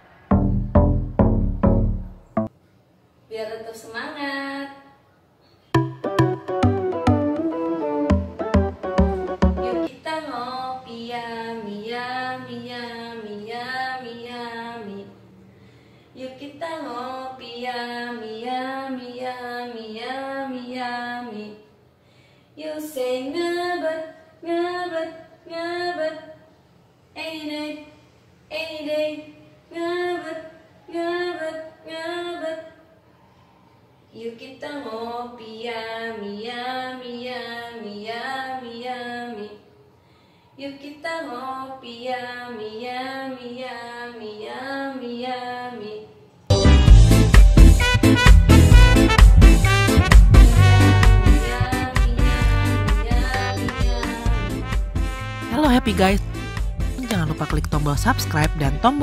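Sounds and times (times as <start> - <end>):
woman singing unaccompanied: 9.6 - 15.1, 16.2 - 21.7, 22.6 - 26.4, 28.5 - 32.8, 40.6 - 46.1, 51.4 - 54.4, 57.0 - 59.0
woman singing: 51.4 - 54.2, 57.0 - 59.0.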